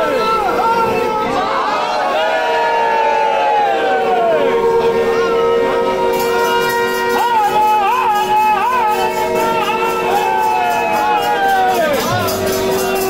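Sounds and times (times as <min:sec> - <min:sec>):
steady drone: 0:00.0 - 0:13.0
ornamented melody: 0:03.9 - 0:13.0.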